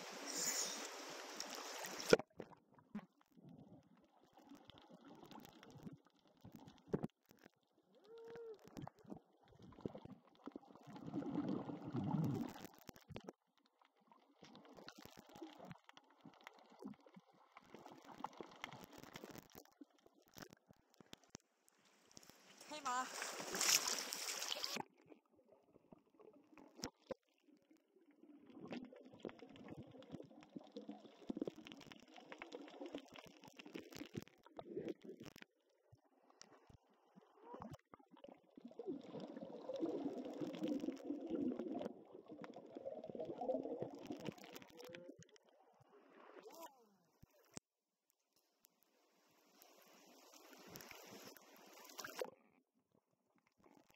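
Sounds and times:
small crackles: 0.0 - 53.9
underwater rumbling and gurgling: 1.0 - 21.0, 24.8 - 46.4
bubbly churning rumble: 8.6 - 13.6, 37.4 - 45.2
muffled underwater water sloshing: 22.2 - 27.2.

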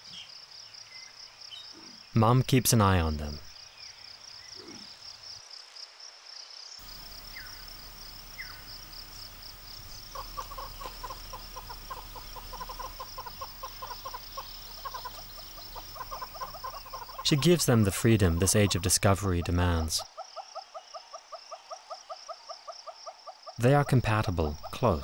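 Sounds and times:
pulsing insect trill: 6.8 - 19.9
bird calling in fast notes: 6.8 - 20.0.

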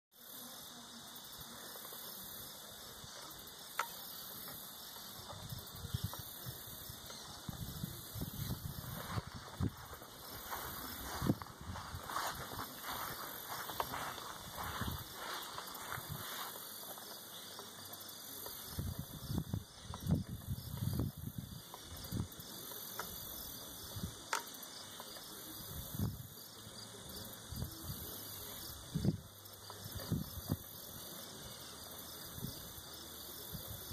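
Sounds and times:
insects chirring: 0.2 - 33.9.

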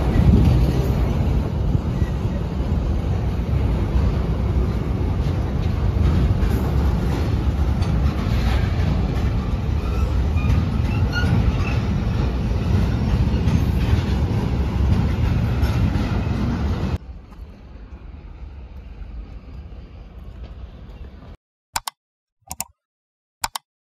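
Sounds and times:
train wheels rumbling on rails: 0.0 - 21.4
short clicks: 21.8 - 22.8, 23.4 - 23.7.

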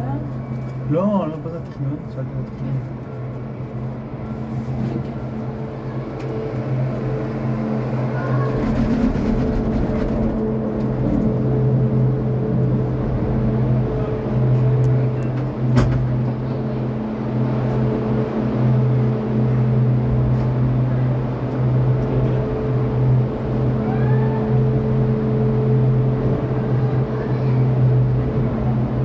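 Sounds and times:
cabin rumbling through machinery: 0.0 - 29.0
cable car mechanical hum: 0.0 - 29.0.

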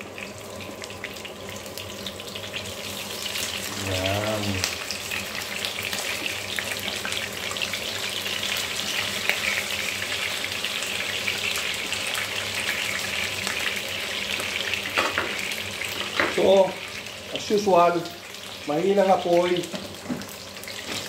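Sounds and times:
fish sizzling in oil: 0.0 - 21.0.

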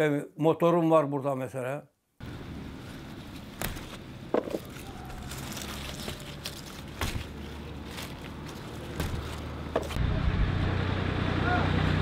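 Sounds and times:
leaves rustling: 2.2 - 10.0.

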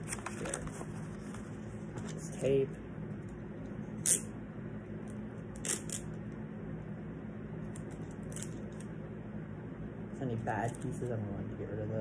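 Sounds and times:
steady low hum: 0.0 - 12.0
sticky tape ripping: 5.6 - 6.1.

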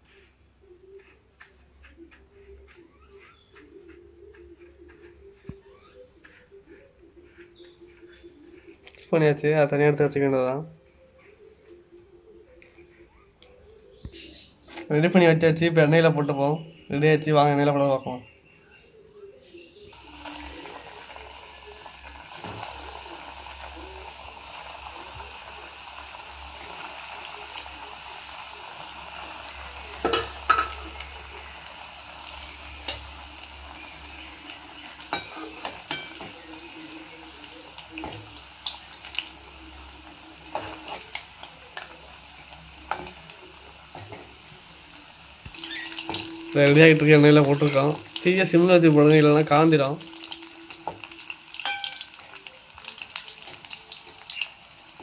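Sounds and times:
chicken deep-frying in oil: 19.9 - 55.0.

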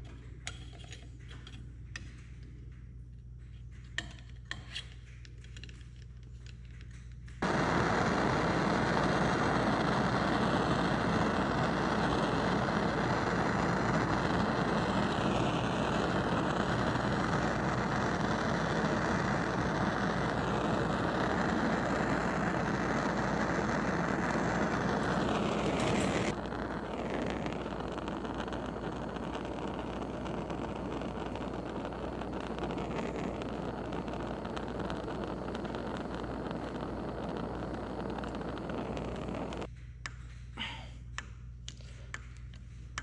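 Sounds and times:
gas torch rushing: 7.4 - 39.7.

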